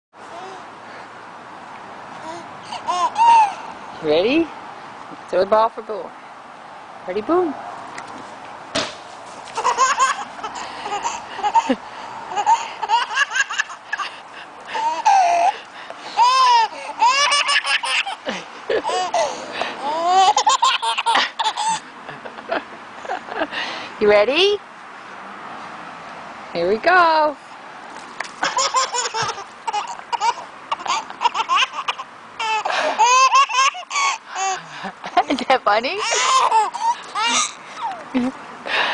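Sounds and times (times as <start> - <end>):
baby giggling: 2.2 - 3.7, 9.5 - 15.6, 16.2 - 21.9, 28.4 - 38.4.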